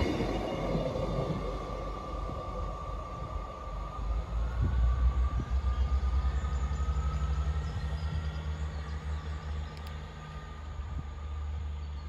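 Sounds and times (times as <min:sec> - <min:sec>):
diesel train rumbling: 0:00.0 - 0:12.0.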